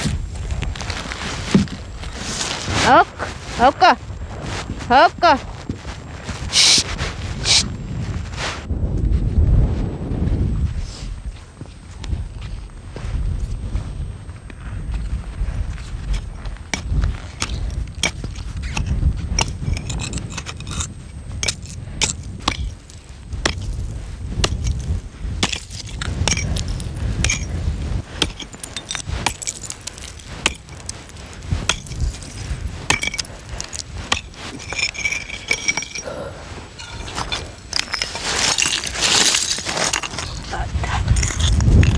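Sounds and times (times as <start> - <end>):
ice chips clinking: 36.8 - 40.5.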